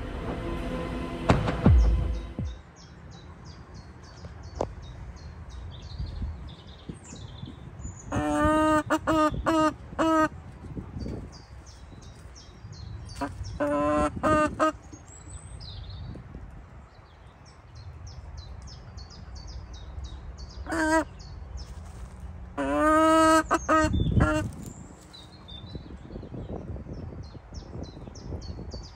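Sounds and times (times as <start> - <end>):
small birds chirping: 2.5 - 28.9
poultry calling: 8.1 - 10.3, 13.2 - 14.9, 20.7 - 21.1, 22.6 - 24.5.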